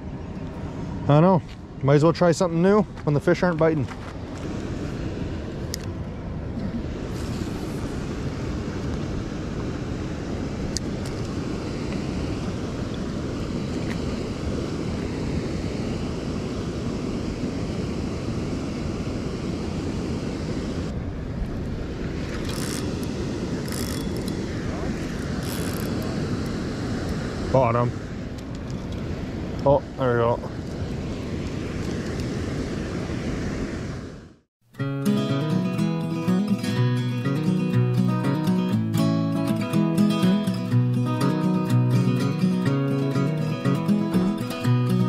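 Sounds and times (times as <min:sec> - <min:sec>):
wind rumbling on microphone: 0:00.0 - 0:34.4.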